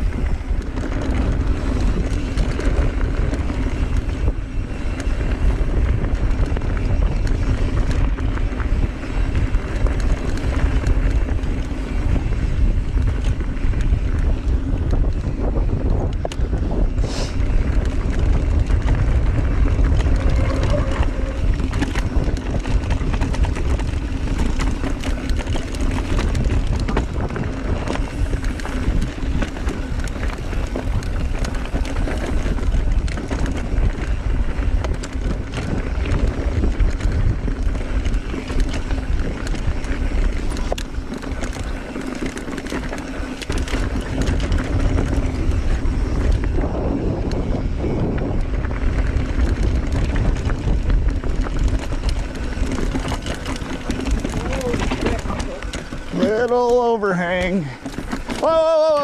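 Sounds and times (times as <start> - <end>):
wind buffeting microphone: 0.0 - 59.0
bike clattering over rock: 50.1 - 59.0.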